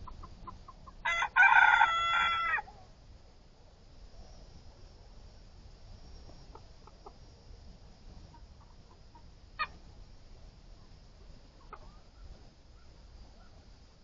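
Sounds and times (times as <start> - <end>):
chickens clucking: 0.0 - 1.0, 6.4 - 7.3, 8.2 - 9.8, 10.7 - 13.6.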